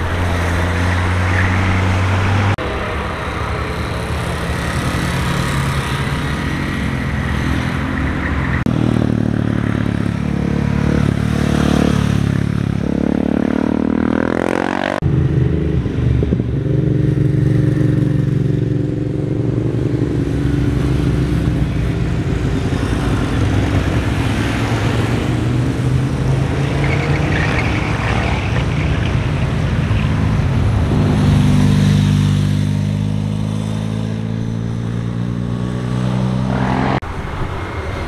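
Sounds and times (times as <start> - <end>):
car passing: 0.0 - 8.7, 22.8 - 38.0
motorcycles passing: 0.0 - 38.0.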